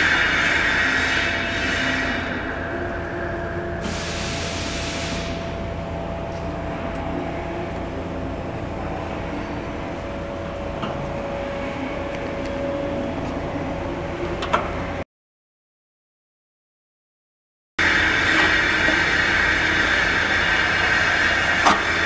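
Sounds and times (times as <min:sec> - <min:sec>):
machinery hum and rumble: 0:00.0 - 0:15.1, 0:17.8 - 0:22.0
conveyor belt sliding hiss: 0:03.8 - 0:05.8.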